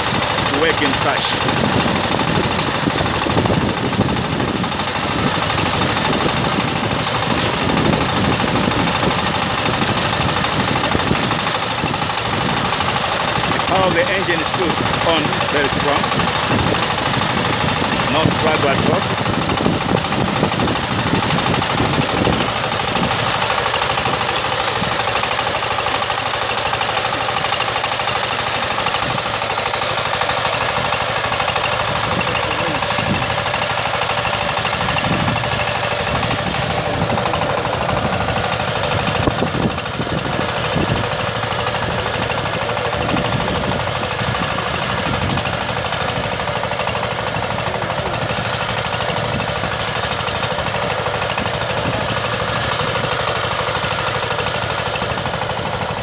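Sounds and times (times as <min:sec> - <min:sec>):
tractor engine running: 0:00.0 - 0:56.0.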